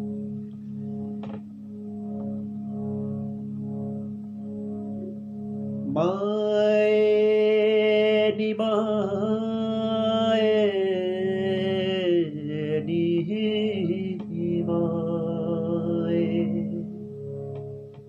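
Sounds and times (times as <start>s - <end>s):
harmonium drone: 0.0s - 18.0s
man singing: 5.9s - 16.9s.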